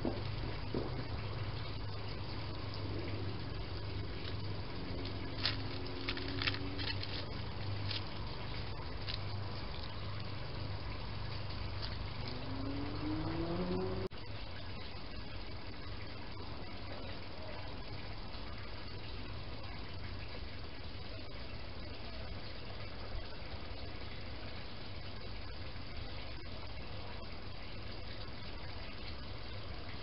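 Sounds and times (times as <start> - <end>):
faint rising whine: 0.0 - 19.8
rustling in dry leaves: 3.2 - 13.8.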